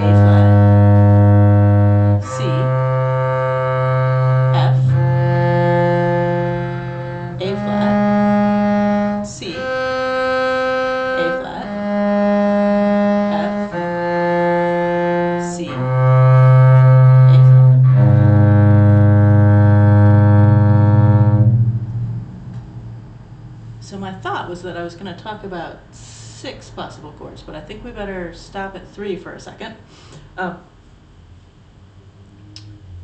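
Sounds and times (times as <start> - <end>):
cello bowing slow arpeggio: 0.0 - 24.0.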